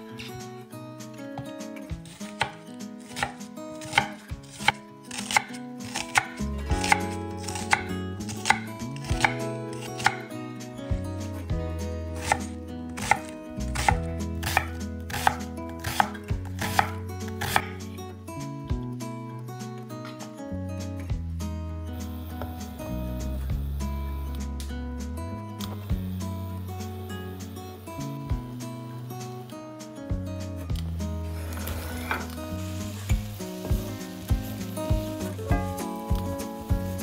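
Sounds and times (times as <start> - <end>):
background music: 0.0 - 37.0
knife chopping on cutting board: 2.2 - 10.3, 12.2 - 17.8.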